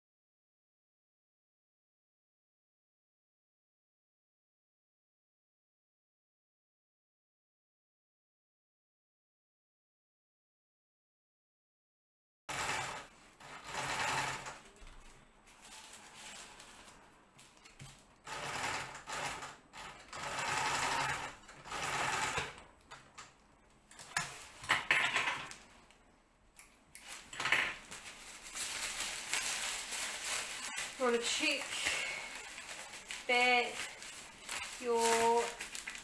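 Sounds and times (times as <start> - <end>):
sewing machine stitching: 12.5 - 14.8, 18.2 - 22.7
nylon fabric rustling: 15.0 - 18.0, 27.1 - 36.0.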